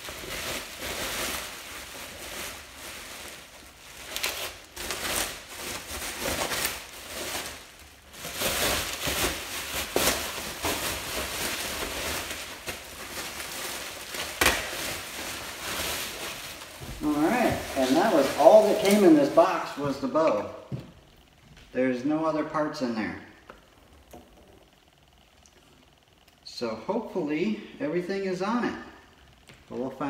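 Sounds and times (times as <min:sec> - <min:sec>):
bubble wrap crinkling: 0:00.0 - 0:21.5.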